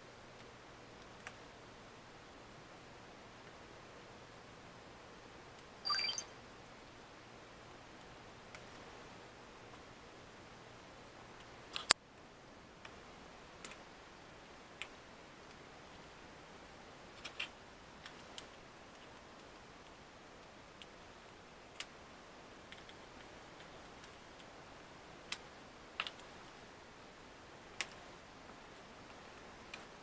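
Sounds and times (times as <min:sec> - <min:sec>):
small plastic clicks and taps: 0:13.6 - 0:13.8, 0:22.6 - 0:24.5, 0:25.3 - 0:26.6, 0:27.8 - 0:28.1.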